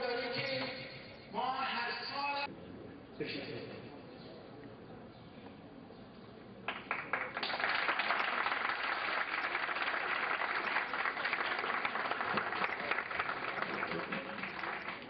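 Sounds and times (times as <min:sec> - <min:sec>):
audience applauding: 0:06.7 - 0:15.0.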